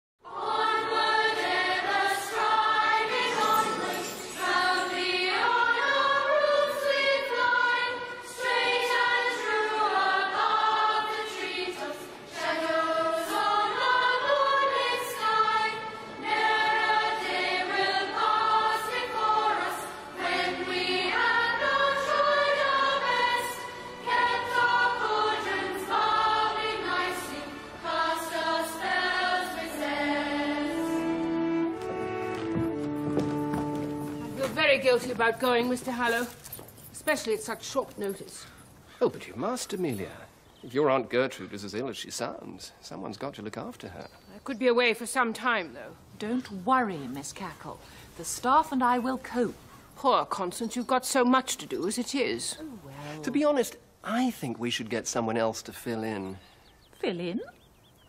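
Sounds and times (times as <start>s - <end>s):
voices singing theme song: 0.2s - 32.8s
instrumental backing: 28.8s - 36.4s.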